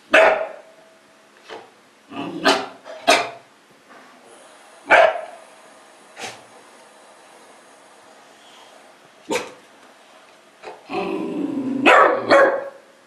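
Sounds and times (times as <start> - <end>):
puppy barking: 0.1 - 0.7, 2.4 - 3.4, 4.9 - 5.4, 9.3 - 9.6, 11.8 - 12.9.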